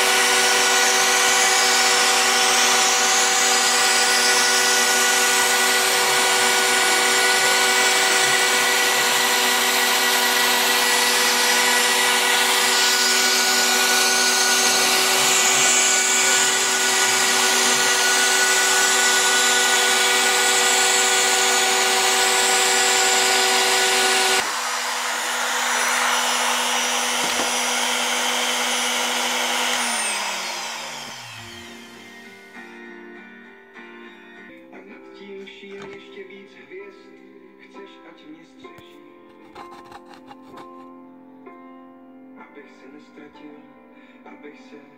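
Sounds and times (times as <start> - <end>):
spindle winding down: 0.0 - 32.4
router spindle whine: 0.0 - 32.7.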